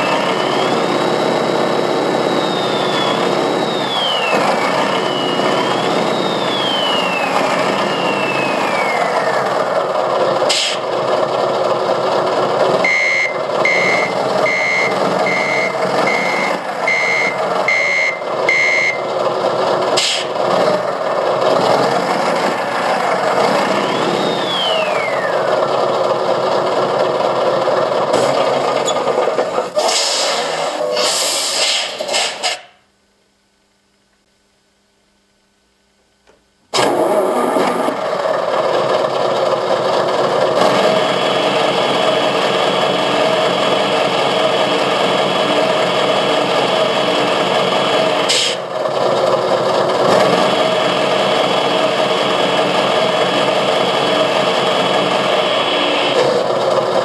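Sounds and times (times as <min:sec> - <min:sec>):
falling whistle: 0:00.0 - 0:09.5, 0:12.8 - 0:19.0, 0:23.8 - 0:25.5
simulated truck engine: 0:00.0 - 0:32.8, 0:35.8 - 0:57.0
short bursts of hiss: 0:29.8 - 0:32.8.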